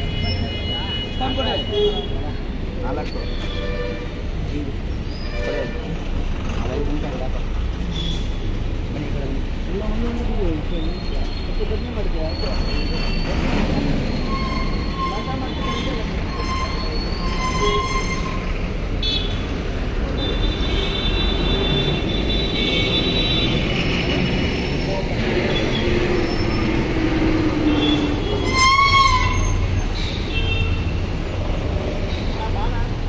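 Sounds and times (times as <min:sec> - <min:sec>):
engine rumble of traffic: 0:00.0 - 0:33.0
high squealing tones: 0:12.3 - 0:18.6, 0:24.8 - 0:30.2.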